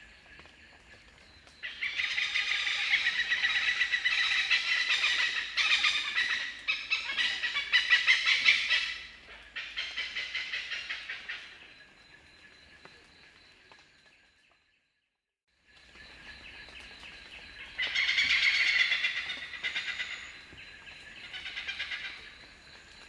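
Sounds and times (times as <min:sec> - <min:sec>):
hornbills calling: 0:01.6 - 0:11.6, 0:17.8 - 0:20.4.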